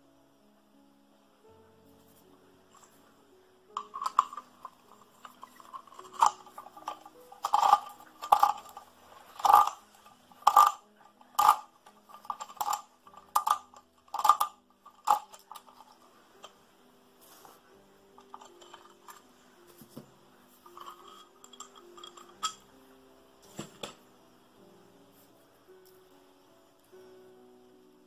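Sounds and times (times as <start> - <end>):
hand coffee grinder parts clicking: 3.8 - 16.5, 18.2 - 19.2, 20.7 - 22.6.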